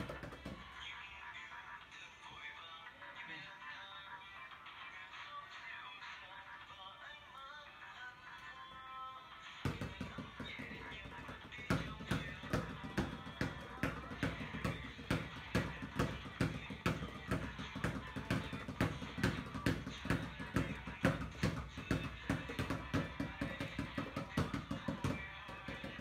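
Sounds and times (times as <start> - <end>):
basketballs bouncing on tiles: 0.0 - 0.8, 9.6 - 26.0.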